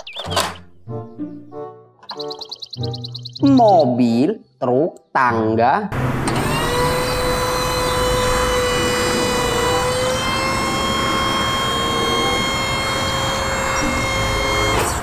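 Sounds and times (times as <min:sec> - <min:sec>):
hydraulic pump whining: 0:06.0 - 0:15.0.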